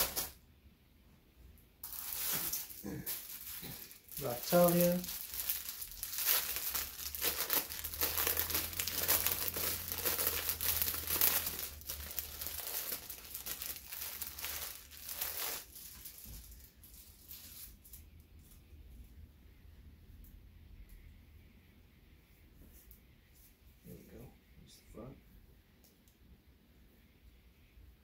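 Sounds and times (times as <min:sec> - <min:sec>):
plastic bag crinkling: 0:01.8 - 0:18.0.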